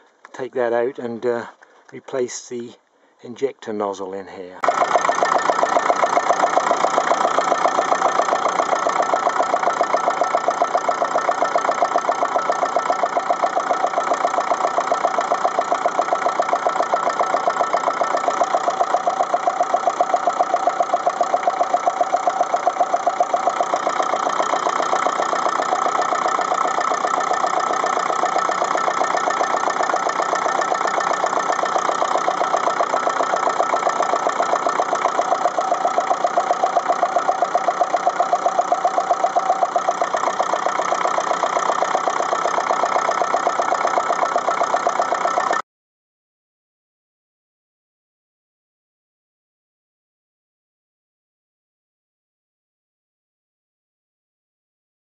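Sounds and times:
misfiring diesel tractor engine: 4.6s - 45.6s.

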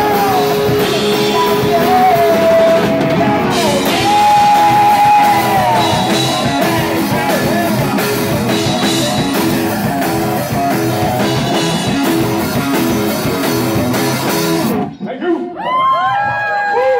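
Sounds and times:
drum kit beat: 0.0s - 15.0s
electric guitar: 0.0s - 15.0s
bass guitar: 0.0s - 15.2s.

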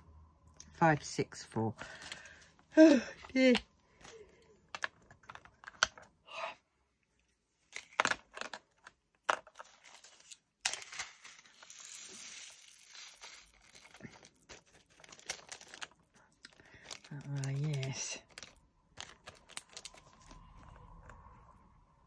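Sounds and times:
plastic bag crinkling: 9.4s - 20.7s.

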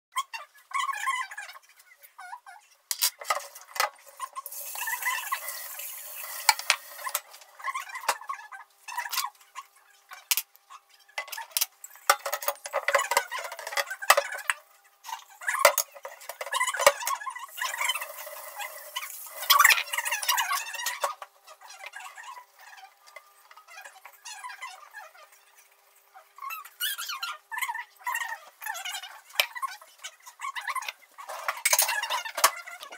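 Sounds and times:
tap running: 4.4s - 7.5s
dishes and cutlery clattering: 11.2s - 14.5s, 31.3s - 32.8s.

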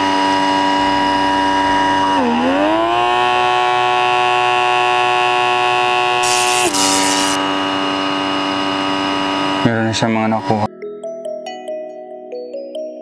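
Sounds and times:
electric pore vacuum buzzing whine: 0.0s - 10.6s.

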